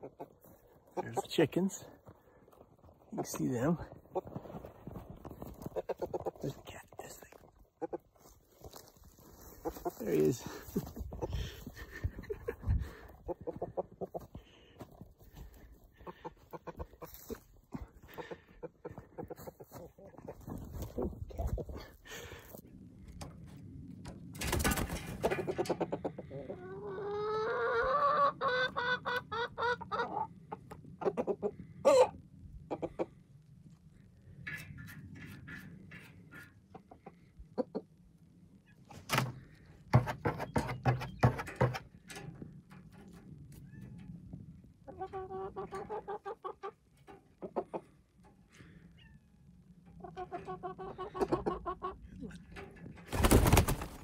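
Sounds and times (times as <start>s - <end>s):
chickens clucking: 0.0s - 22.4s, 24.8s - 33.2s, 34.4s - 38.0s, 44.8s - 54.0s
chicken long drawn-out call: 26.0s - 30.3s, 31.1s - 32.2s.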